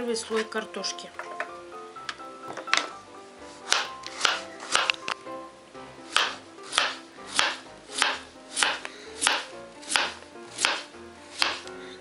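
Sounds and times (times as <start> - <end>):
knife slicing potato: 3.6 - 5.0, 6.0 - 11.8
blade knocking on cutting board: 3.7 - 5.0, 6.1 - 11.7.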